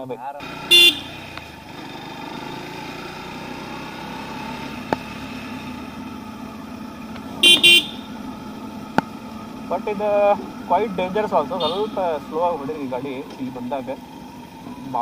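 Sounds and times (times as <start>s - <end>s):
road noise: 0.0s - 15.0s
motorcycle engine running: 0.4s - 15.0s
vehicle horn toots: 0.6s - 1.3s, 7.4s - 8.2s, 11.5s - 12.2s.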